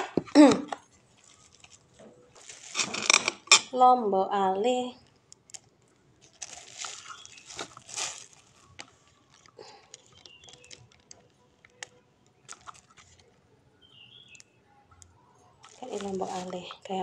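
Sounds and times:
plastic bag crinkling: 0:00.7 - 0:03.7, 0:05.0 - 0:13.4, 0:15.6 - 0:17.0.

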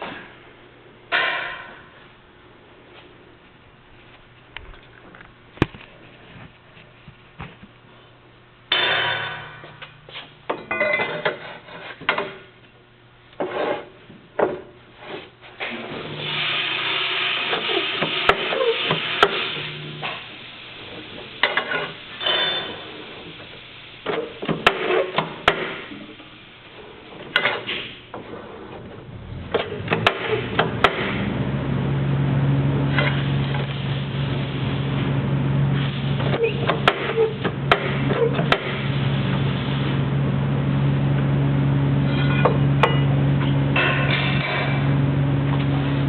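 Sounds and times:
metal clanks and scraping: 0:08.7 - 0:12.5, 0:21.4 - 0:22.9, 0:27.2 - 0:31.1, 0:42.0 - 0:44.9.

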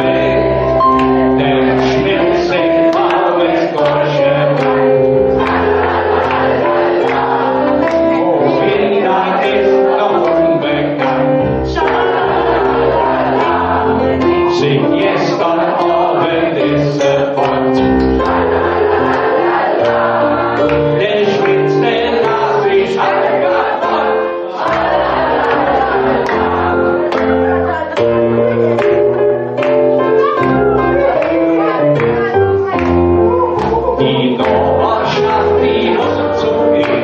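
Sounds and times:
man singing into a microphone: 0:00.0 - 0:05.2, 0:07.9 - 0:18.4, 0:20.7 - 0:24.0, 0:32.9 - 0:37.0
electric piano: 0:00.0 - 0:37.0
voices singing along: 0:00.0 - 0:37.0.

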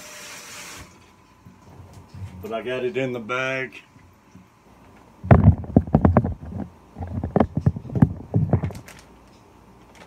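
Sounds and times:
handling thumps and rustles: 0:05.2 - 0:09.1.

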